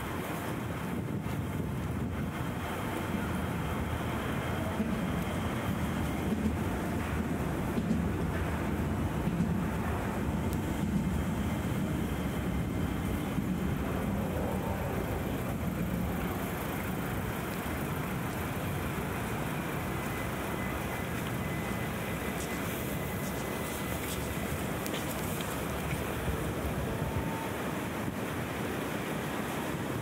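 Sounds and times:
low rumble of traffic: 0:00.0 - 0:30.0.

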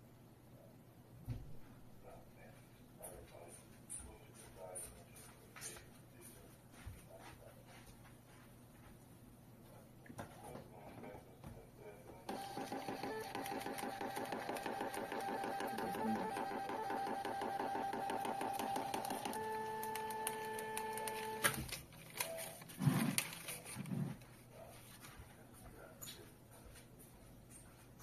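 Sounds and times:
receipt printer motor buzzing: 0:12.3 - 0:21.6.

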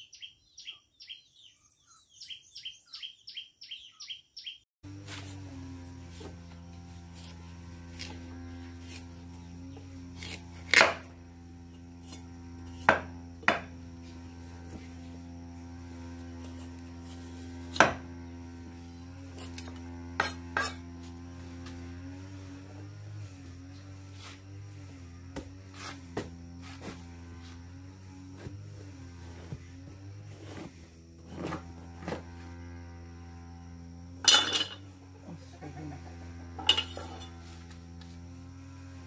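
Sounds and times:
steady low hum: 0:04.9 - 0:39.0
knife knocking and scraping squash: 0:08.8 - 0:14.9, 0:16.4 - 0:18.1.

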